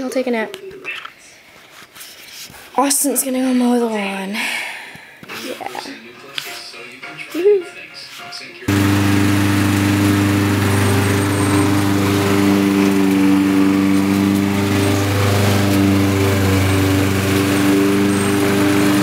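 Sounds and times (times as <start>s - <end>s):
lawn mower engine running: 8.7s - 19.0s.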